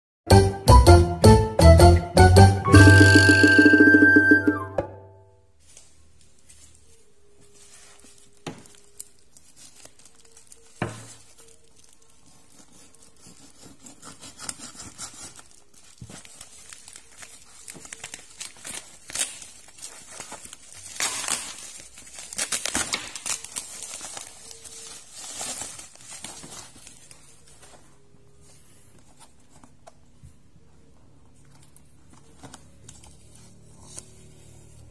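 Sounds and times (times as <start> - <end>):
plastic packaging crinkling: 5.6 - 30.1.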